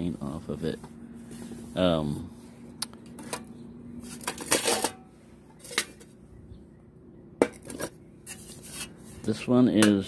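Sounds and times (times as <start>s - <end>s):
metal windscreen scraping rattle: 3.1s - 6.2s, 7.4s - 9.6s
metal mess kit clicks and clanks: 4.1s - 5.0s.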